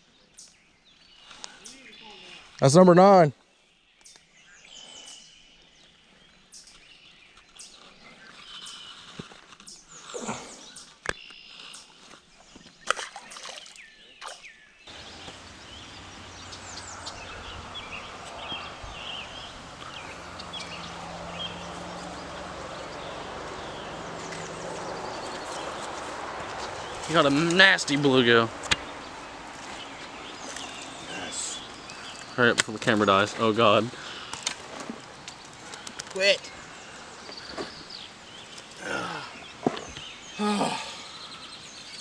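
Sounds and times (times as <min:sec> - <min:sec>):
birds chirping: 0:00.0 - 0:03.2, 0:03.8 - 0:42.0
outdoor background noise: 0:00.0 - 0:42.0
clicks and rustles of handling fish: 0:07.4 - 0:09.9, 0:34.3 - 0:36.2.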